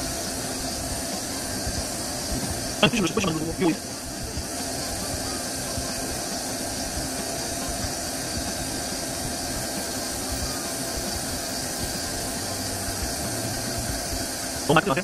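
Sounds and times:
lathe running: 0:06.3 - 0:15.0.

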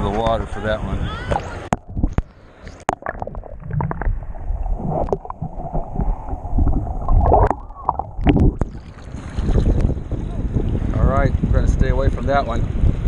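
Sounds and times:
muffled underwater surf sloshing: 0:00.0 - 0:13.0
wind: 0:00.0 - 0:13.0
bubbly gurgles: 0:02.9 - 0:10.0.

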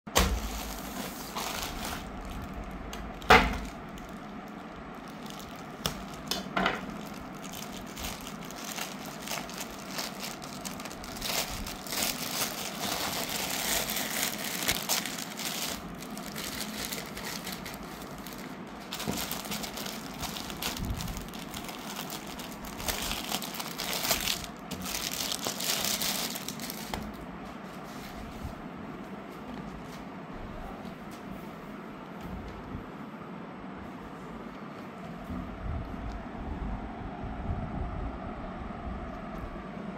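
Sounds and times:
plastic bag crinkling: 0:00.2 - 0:27.2.

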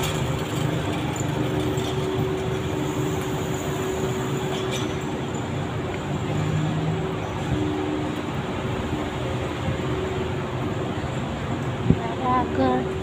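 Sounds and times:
constant low hum: 0:00.0 - 0:13.0.

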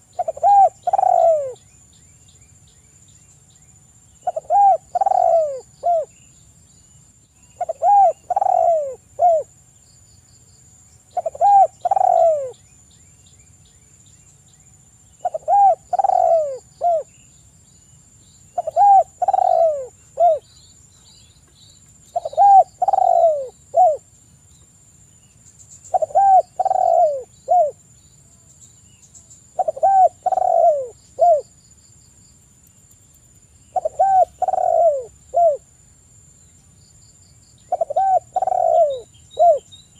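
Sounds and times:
dove cooing: 0:00.0 - 0:01.6, 0:04.2 - 0:06.1, 0:07.6 - 0:09.5, 0:11.1 - 0:12.6, 0:15.2 - 0:17.1, 0:18.6 - 0:20.5, 0:22.1 - 0:24.0, 0:25.9 - 0:27.8, 0:29.5 - 0:31.5, 0:33.8 - 0:35.6, 0:37.7 - 0:39.7.

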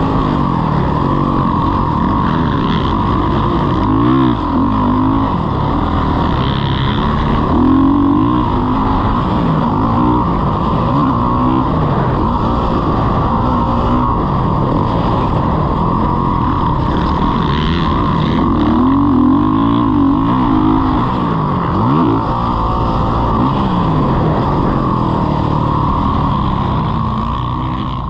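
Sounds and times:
dirt bike engine revving: 0:00.0 - 0:28.0.

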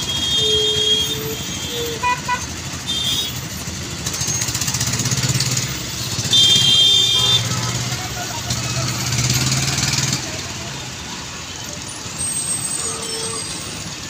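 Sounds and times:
car horns honking: 0:00.0 - 0:04.7, 0:05.6 - 0:09.6, 0:12.2 - 0:14.0
vehicle engines running: 0:00.0 - 0:14.0.

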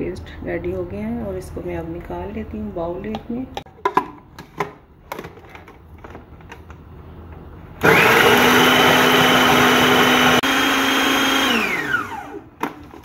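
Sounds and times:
food processor motor whining: 0:07.8 - 0:12.8.

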